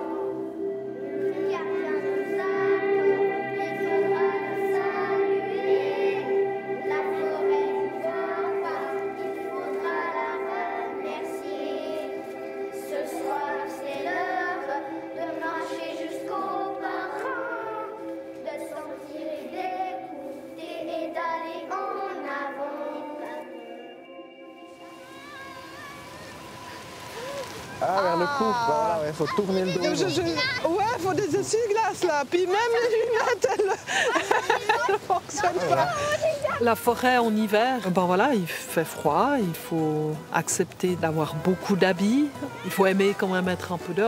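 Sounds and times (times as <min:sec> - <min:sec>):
children singing together: 0:00.0 - 0:26.8, 0:33.5 - 0:36.6
held instrumental notes: 0:00.0 - 0:44.0.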